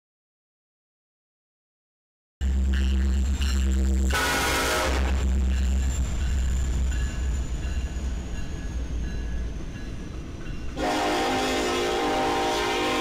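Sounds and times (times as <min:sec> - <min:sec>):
train horn: 0:04.1 - 0:05.4, 0:10.8 - 0:13.0.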